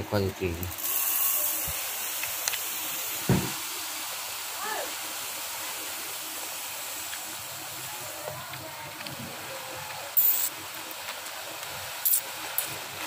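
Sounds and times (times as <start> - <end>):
rice grains pouring: 0.1 - 8.3.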